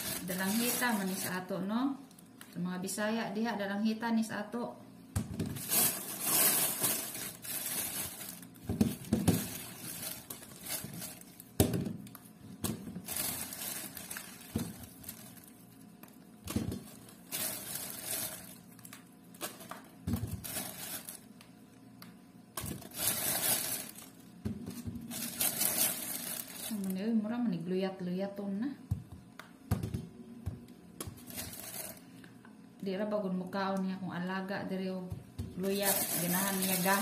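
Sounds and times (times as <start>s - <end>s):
plastic bag crinkling: 0.0s - 1.5s, 5.5s - 12.2s, 12.9s - 15.9s, 16.5s - 21.4s, 22.6s - 24.4s, 25.0s - 27.0s, 31.2s - 32.1s, 35.5s - 37.0s
fruit knocking in plastic basket: 8.6s - 9.6s, 11.6s - 13.1s, 14.4s - 14.9s, 16.4s - 17.0s, 28.9s - 31.2s.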